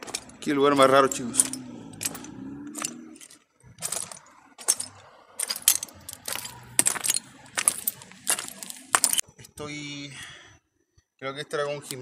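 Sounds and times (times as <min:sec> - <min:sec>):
footsteps on debris-strewn concrete: 0:00.0 - 0:09.3.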